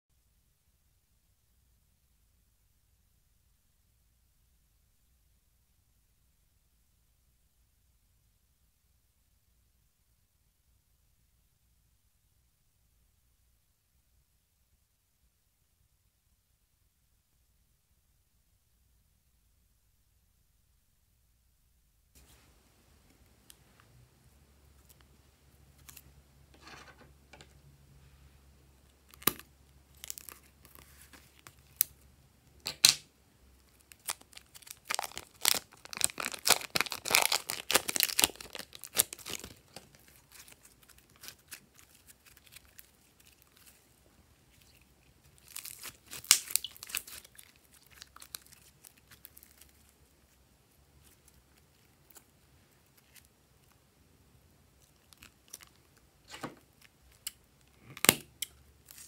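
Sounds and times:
plastic crinkling and tearing: 29.1s - 32.0s, 33.6s - 50.3s, 54.8s - 58.2s.

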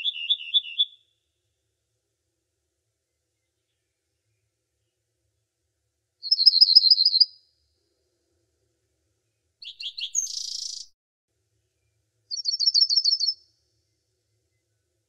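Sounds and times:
songbird singing: 0.0s - 1.2s, 6.2s - 7.4s, 9.6s - 11.0s, 11.8s - 13.4s.

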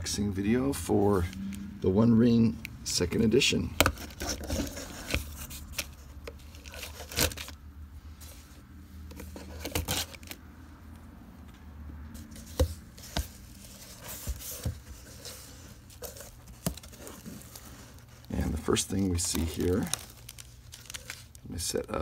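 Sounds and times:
cardboard scraping: 3.8s - 7.6s, 8.2s - 10.4s, 12.2s - 21.3s
packing tape ripping: 6.6s - 7.6s.

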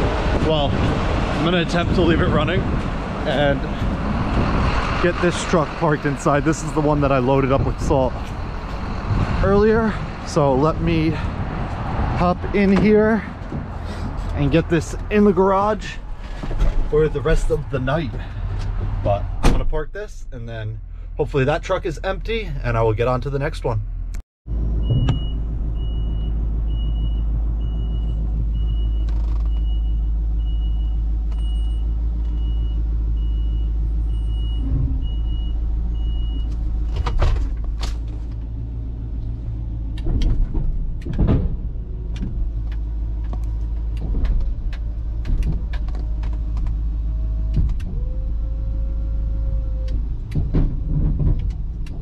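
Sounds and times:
truck engine running: 0.0s - 19.0s
knocks and clunks: 11.2s - 20.0s, 24.8s - 25.5s, 36.4s - 38.6s, 39.2s - 48.3s, 49.5s - 52.0s.

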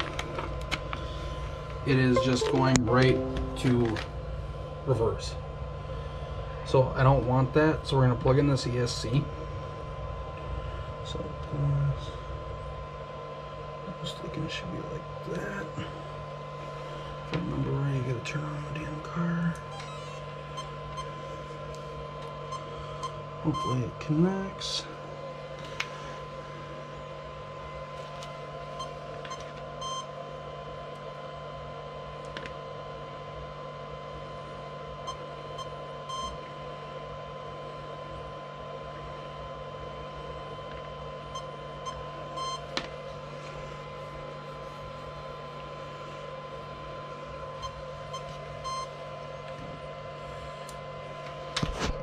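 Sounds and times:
low steady hum: 0.0s - 32.9s, 33.5s - 52.0s
high-pitched electronic tone: 2.2s - 4.1s.

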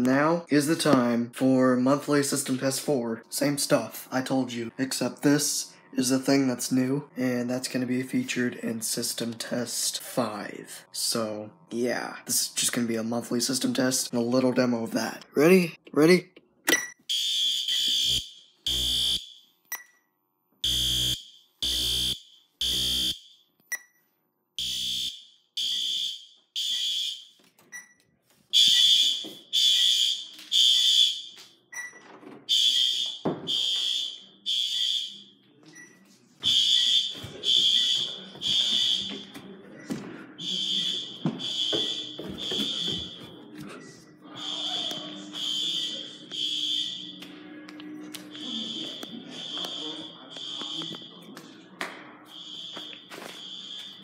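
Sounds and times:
fire alarm horn beeps: 17.1s - 19.4s, 20.6s - 23.3s, 24.6s - 27.3s, 28.6s - 31.4s, 32.5s - 35.2s, 36.5s - 39.2s, 40.4s - 43.2s, 44.4s - 47.2s, 48.3s - 51.2s, 52.3s - 54.0s.

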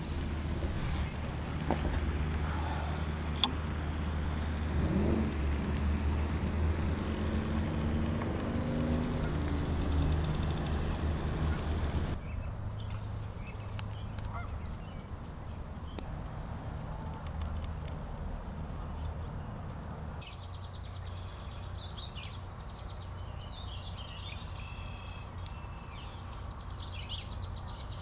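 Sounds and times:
faint small birds chirping: 0.0s - 1.6s, 18.6s - 28.0s
geese honking: 14.2s - 14.6s.

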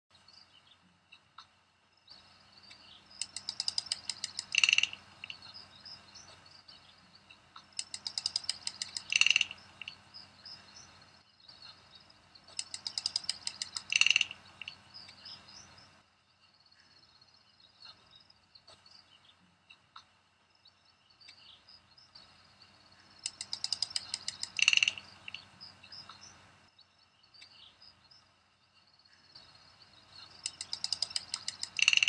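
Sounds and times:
small high chirps: 0.2s - 32.0s
ratchet-like clicks: 3.1s - 5.0s, 7.6s - 9.9s, 12.5s - 14.7s, 23.2s - 25.1s, 30.3s - 32.0s.

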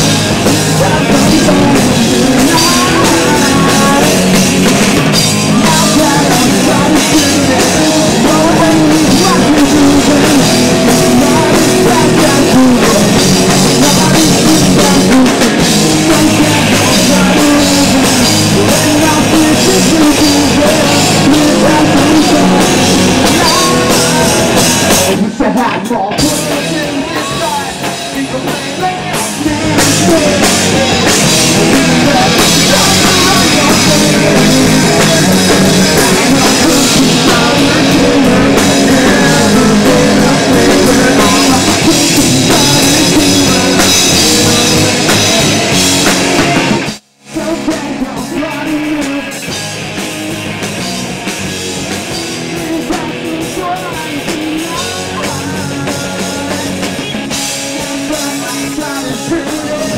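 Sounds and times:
man singing: 0.0s - 46.6s, 47.2s - 50.0s, 51.9s - 59.9s
rock band playing: 0.0s - 59.9s.

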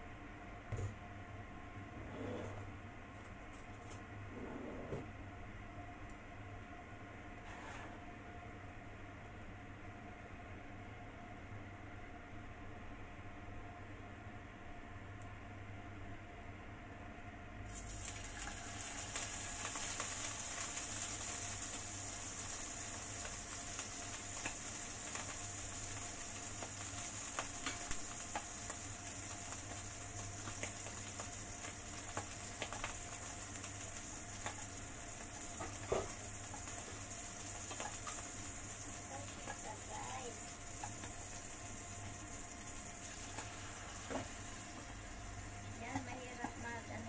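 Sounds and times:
fish frying in hot oil: 17.6s - 47.0s.

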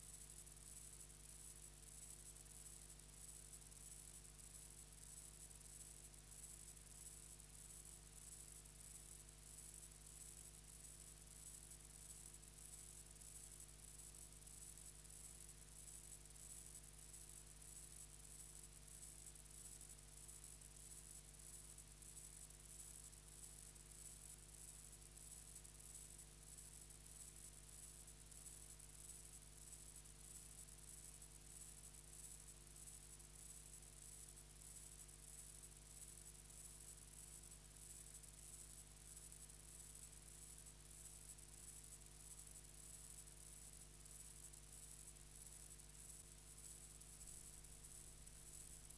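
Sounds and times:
faint steady hiss: 0.0s - 26.0s, 36.7s - 48.9s
low electrical hum: 0.0s - 36.3s, 46.9s - 48.9s.

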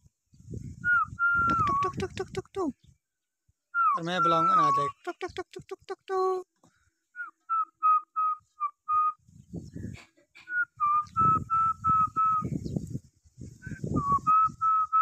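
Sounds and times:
wind buffeting microphone: 0.2s - 3.0s, 9.2s - 15.0s
person whistling short notes: 0.8s - 2.4s, 7.2s - 9.2s, 10.5s - 12.5s, 13.6s - 15.0s.

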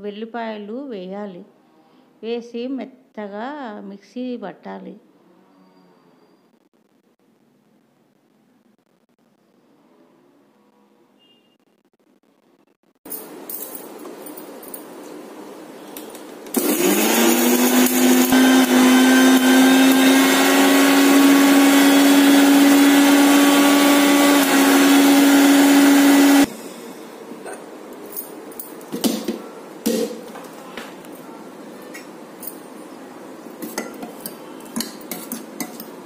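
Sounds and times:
mixer grinder motor whining: 16.5s - 26.5s.

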